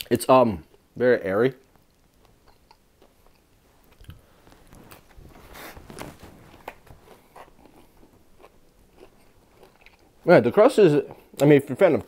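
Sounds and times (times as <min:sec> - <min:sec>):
person chewing with mouth clicks: 0:01.6 - 0:04.3, 0:06.5 - 0:10.2.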